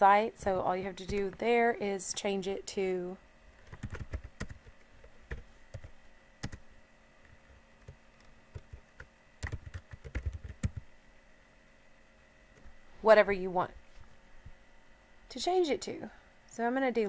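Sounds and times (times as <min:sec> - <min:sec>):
computer keyboard typing: 0:00.8 - 0:01.4, 0:03.6 - 0:06.6, 0:07.3 - 0:10.9.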